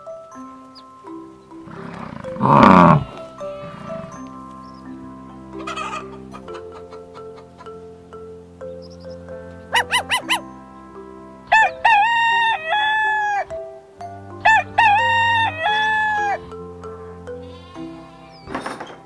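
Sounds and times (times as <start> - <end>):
soft background music: 0.0 - 19.0
rooster clucking: 1.7 - 4.2
rooster crowing: 14.5 - 16.6.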